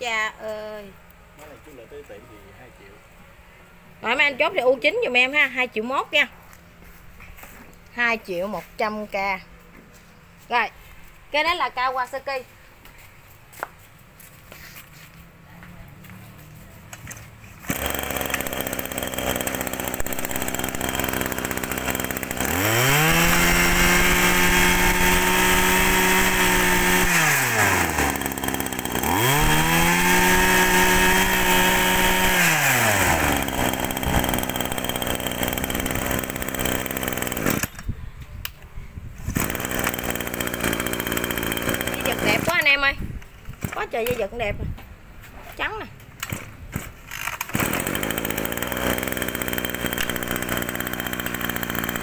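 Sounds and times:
brush cutter engine idling and revving: 15.9 - 38.0, 39.2 - 44.4, 46.2 - 52.0.

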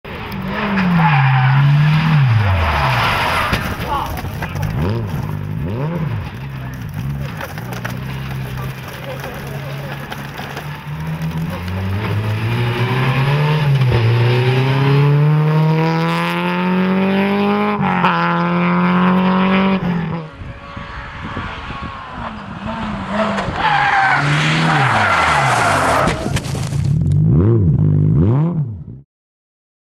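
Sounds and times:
rally car engine revving: 0.1 - 26.3, 26.9 - 29.0.

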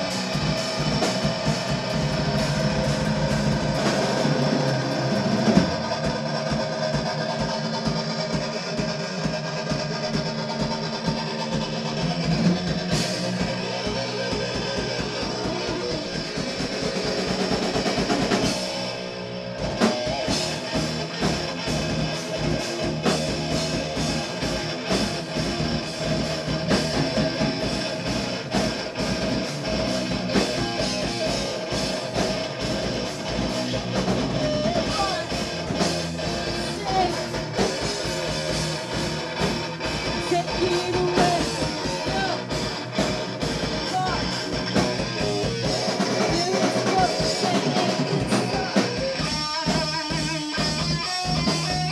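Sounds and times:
bass guitar: 0.0 - 51.9
drum beat: 0.0 - 51.9
electric guitar: 0.0 - 51.9.

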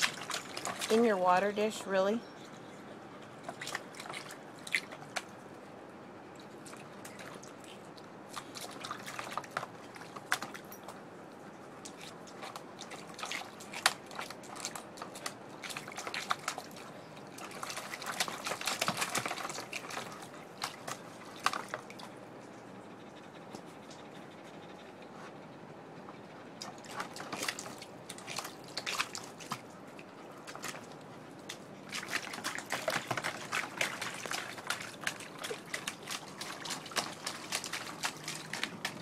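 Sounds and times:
water splashing and dripping: 0.0 - 1.9, 6.4 - 11.0, 11.8 - 22.1, 26.7 - 39.0.

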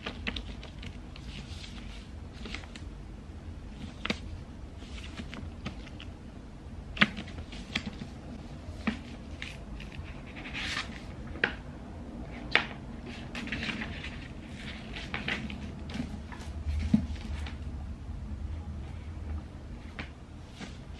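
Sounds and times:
pages rustling: 0.0 - 2.9, 3.7 - 6.2, 7.0 - 11.6, 12.2 - 17.6, 19.7 - 20.9.

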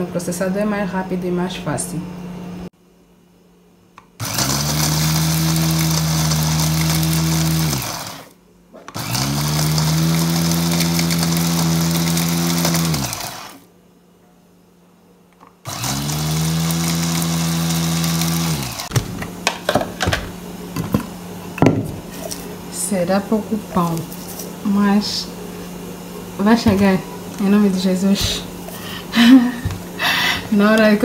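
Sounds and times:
electric food chopper motor whine: 4.0 - 13.7, 15.6 - 19.1.

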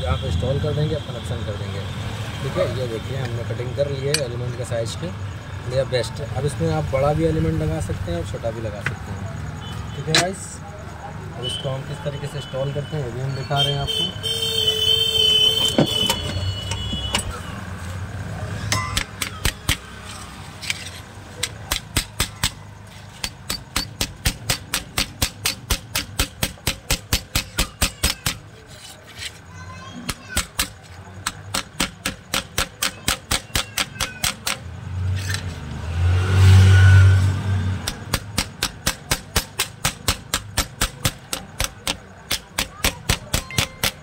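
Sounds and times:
metal clicks and taps with ringing: 4.1 - 4.4, 15.7 - 17.4, 18.7 - 19.9, 21.4 - 22.6, 23.2 - 28.5, 30.4 - 34.7, 37.8 - 44.0.

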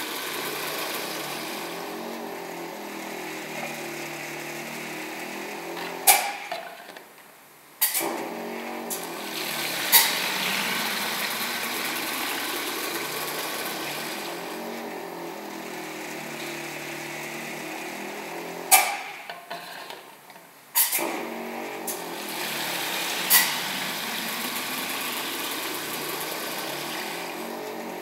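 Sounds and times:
filling machine running: 0.0 - 6.5, 7.9 - 20.0, 20.8 - 28.0
liquid filling plastic bottles: 0.0 - 7.1, 7.8 - 20.1, 20.8 - 28.0
sharp pneumatic hisses: 6.0 - 6.5, 7.8 - 8.2, 18.7 - 19.9, 20.8 - 23.8.

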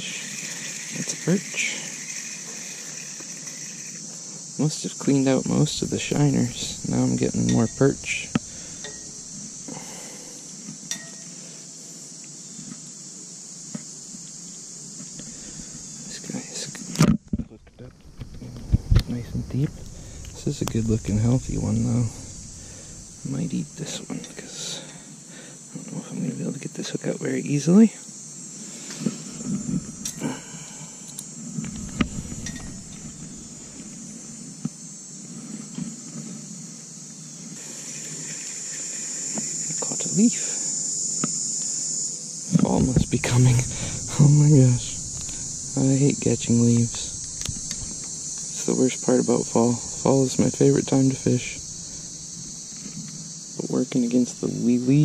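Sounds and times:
fishing reel ticking: 0.0 - 4.2
insects buzzing: 0.0 - 55.0.

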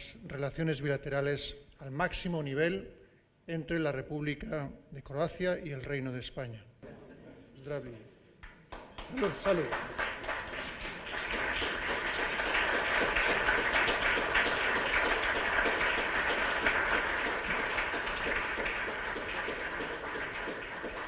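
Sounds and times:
crowd applauding: 8.7 - 21.0.

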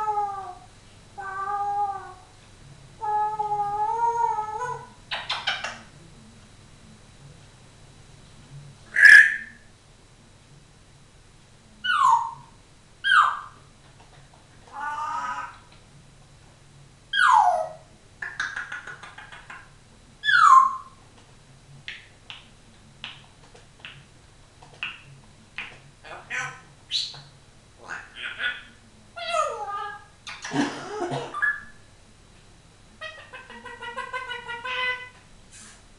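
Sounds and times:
parrot warbling call: 8.9 - 9.6, 11.8 - 13.6, 14.8 - 15.6, 27.8 - 30.5, 33.0 - 35.2
parrot whistling: 8.9 - 9.6
parrot clicks and chirps: 18.2 - 19.6.

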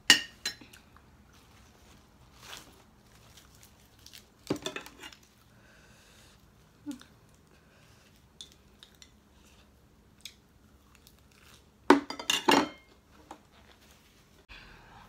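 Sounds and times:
dishes and utensils clinking: 11.9 - 12.9.

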